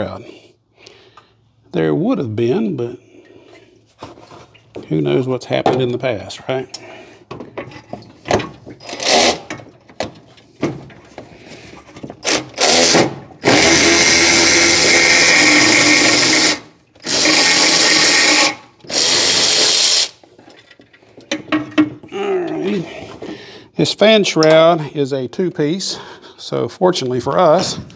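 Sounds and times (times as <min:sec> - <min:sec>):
cordless ratchet motor running: 0:08.9 - 0:09.5, 0:12.2 - 0:20.2.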